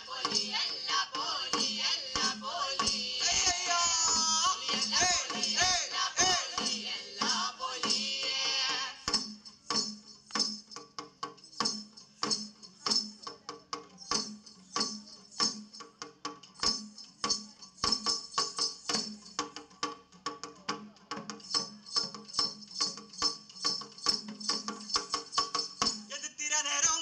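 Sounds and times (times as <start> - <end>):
sung chorus: 0.0 - 9.3
drums with metal jingles: 0.0 - 26.2.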